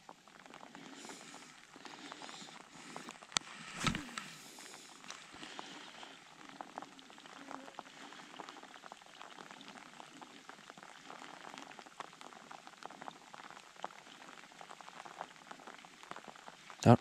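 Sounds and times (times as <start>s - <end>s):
low steady hiss: 0.0s - 17.0s
water dripping: 4.4s - 17.0s.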